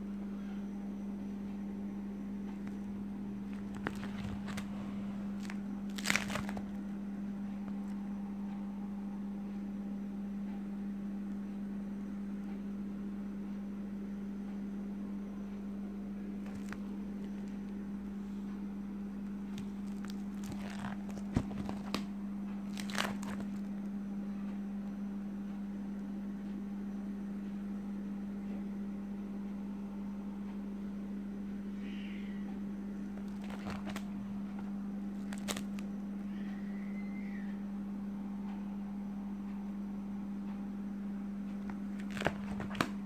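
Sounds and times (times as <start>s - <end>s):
steady low hum: 0.0s - 43.0s
plastic sleeves crinkling: 2.6s - 6.8s, 16.4s - 17.8s, 19.5s - 23.7s, 33.2s - 35.9s, 41.7s - 43.0s.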